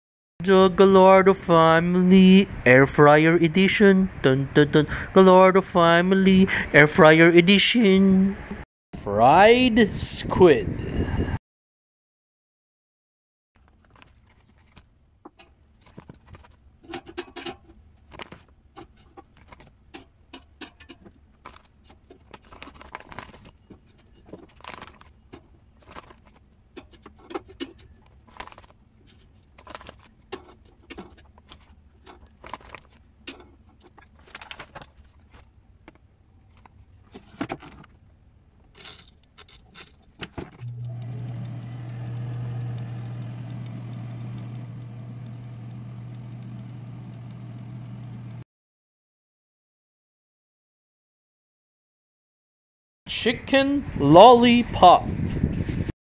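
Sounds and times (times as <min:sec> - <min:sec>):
air fryer basket clatter: 0:15.3 - 0:23.5
air fryer fan humming: 0:40.2 - 0:48.4.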